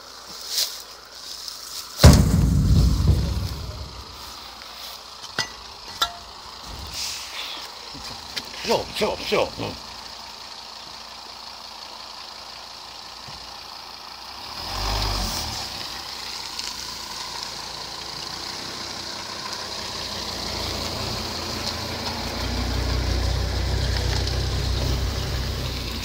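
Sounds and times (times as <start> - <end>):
van engine rumbling: 0.0 - 26.0.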